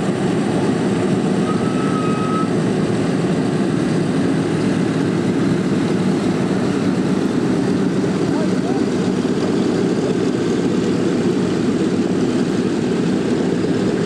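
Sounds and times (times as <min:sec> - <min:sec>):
piston aircraft engines idling: 0:00.0 - 0:14.0
thin whistling tone: 0:01.4 - 0:02.5.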